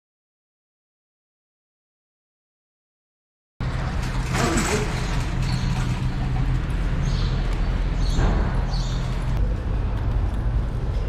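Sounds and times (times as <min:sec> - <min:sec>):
cart rattling clinks: 0:03.6 - 0:09.4
shopping cart wheels rumbling: 0:03.6 - 0:11.0.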